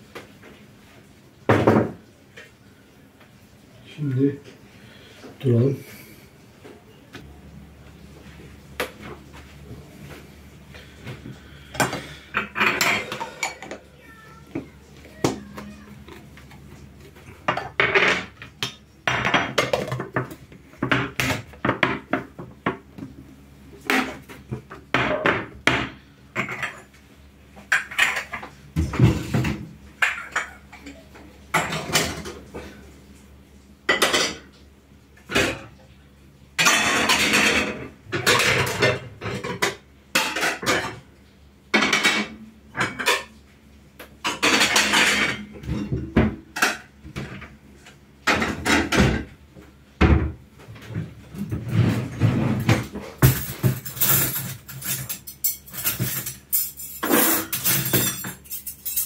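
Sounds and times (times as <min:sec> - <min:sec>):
dishes and cutlery clattering: 0:11.8 - 0:13.8, 0:17.4 - 0:22.8, 0:23.9 - 0:26.9, 0:27.6 - 0:32.4, 0:33.9 - 0:34.5, 0:36.6 - 0:41.0, 0:41.7 - 0:43.4, 0:44.2 - 0:47.5, 0:51.5 - 0:59.0.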